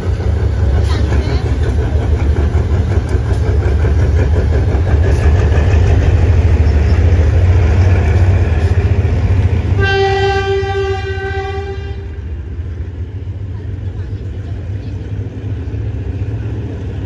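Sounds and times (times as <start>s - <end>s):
diesel locomotive engine rumbling: 0.0s - 17.0s
locomotive horn: 9.7s - 12.3s.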